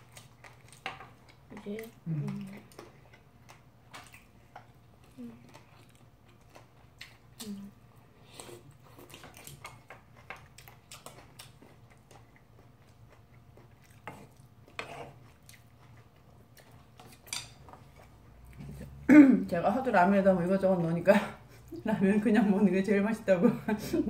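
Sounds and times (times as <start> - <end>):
people chewing: 0.0 - 19.1.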